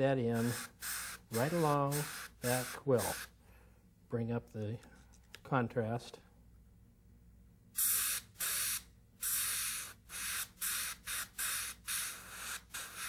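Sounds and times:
airbrush hissing bursts: 0.3 - 3.4, 7.8 - 13.0.

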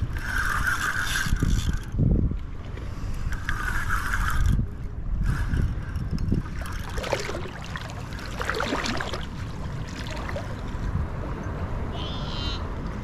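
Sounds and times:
wind rumble on microphone: 0.0 - 13.0
shallow water sloshing: 6.3 - 10.9.

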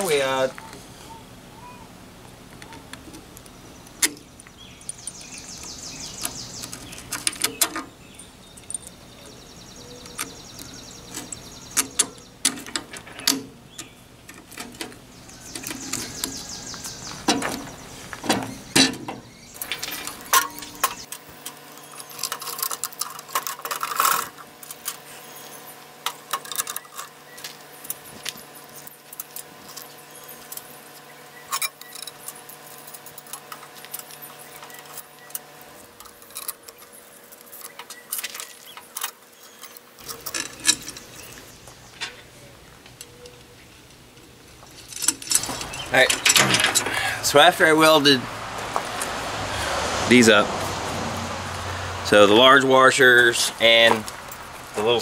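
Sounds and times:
metal bolts and nuts clinking: 3.9 - 30.8, 31.5 - 42.3, 44.6 - 48.2.

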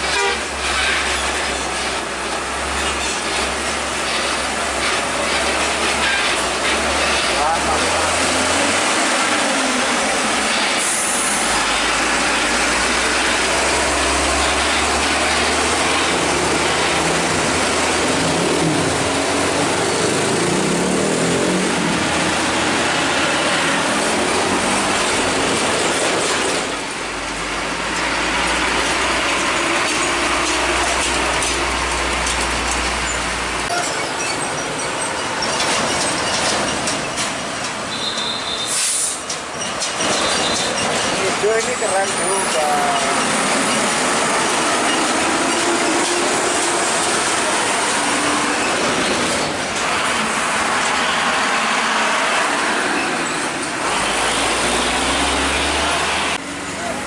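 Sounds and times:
heavy trucks driving: 0.0 - 57.0.

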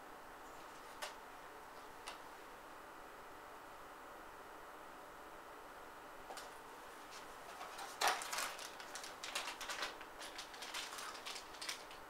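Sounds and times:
plastic bags crinkling: 7.5 - 12.0.

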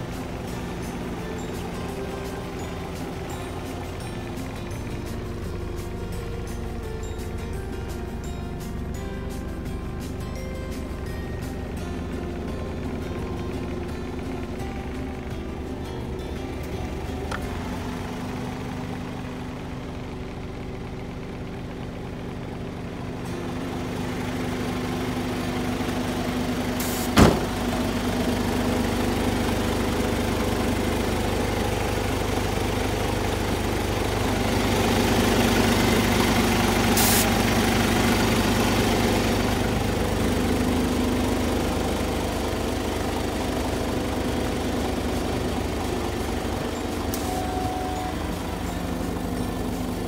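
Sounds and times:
diesel truck engine idling: 0.0 - 50.0
sharp knock: 27.1 - 27.5.

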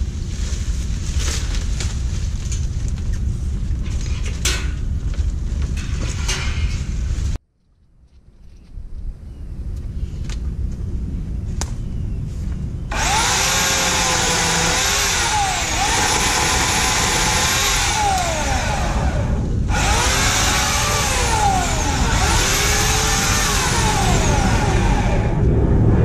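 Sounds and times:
electric chainsaw whining: 12.9 - 25.4.

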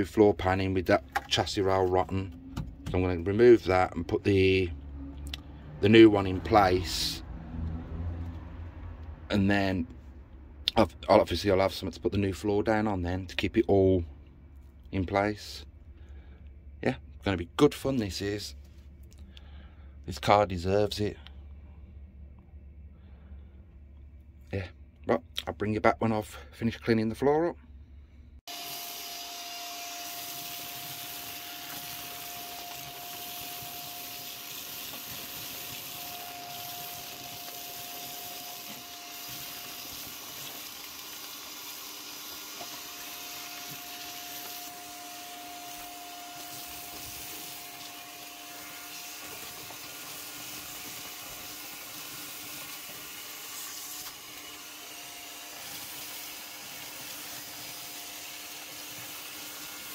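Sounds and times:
vacuum cleaner running: 28.5 - 59.9.

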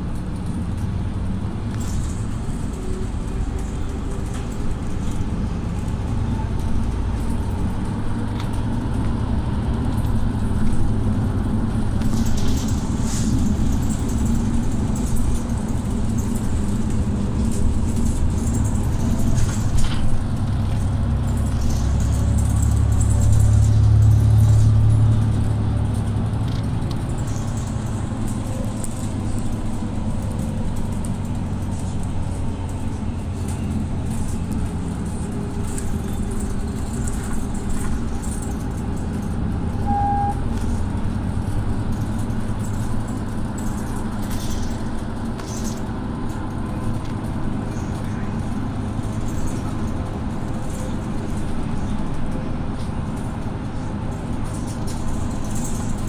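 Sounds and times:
bus engine drone and road noise: 0.0 - 56.0
short beep: 39.8 - 40.5.

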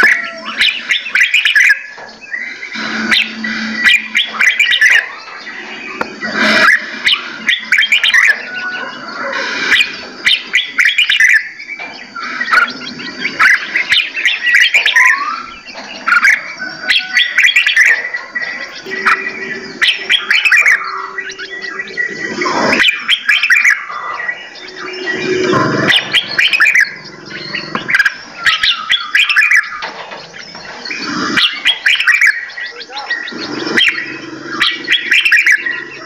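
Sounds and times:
songbirds chirping and whistling: 0.0 - 36.0.

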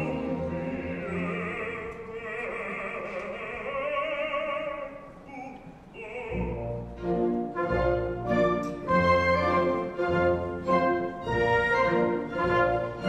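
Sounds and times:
orchestra playing: 0.0 - 2.2, 6.2 - 13.0.

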